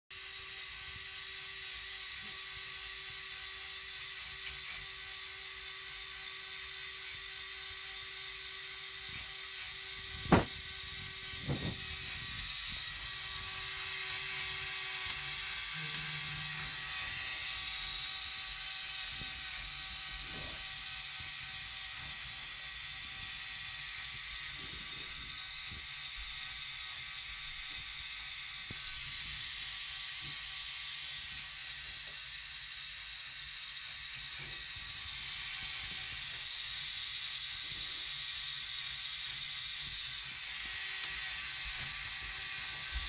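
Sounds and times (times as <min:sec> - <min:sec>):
toy motor and gears whirring: 0:00.1 - 0:43.0
fine ratchet-like clicking: 0:00.2 - 0:43.0
sharp knock: 0:10.3 - 0:10.5.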